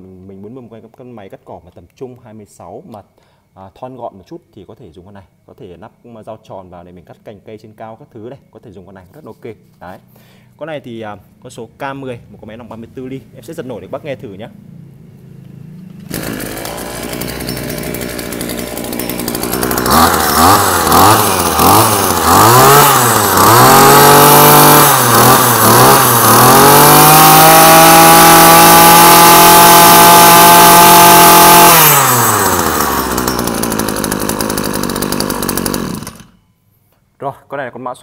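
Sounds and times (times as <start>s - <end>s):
brush cutter engine revving: 15.8s - 36.4s.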